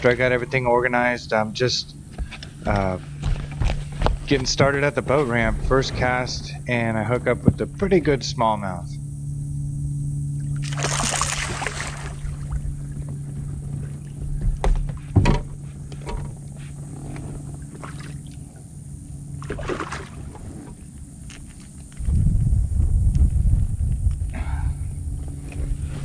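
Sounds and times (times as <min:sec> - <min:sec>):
boat motor humming: 0:00.0 - 0:26.0
fish splashing: 0:10.4 - 0:13.0, 0:19.4 - 0:20.4.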